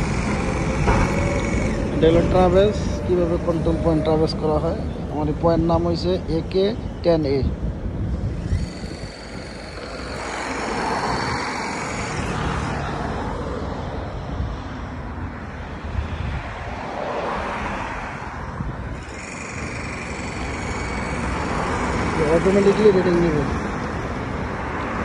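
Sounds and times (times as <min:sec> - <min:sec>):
road traffic passing: 0:00.0 - 0:25.0.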